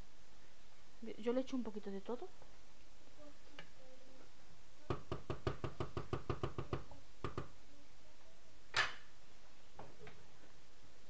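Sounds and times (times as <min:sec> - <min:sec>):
wooden spoon knocking on metal pot: 0:04.9 - 0:07.5.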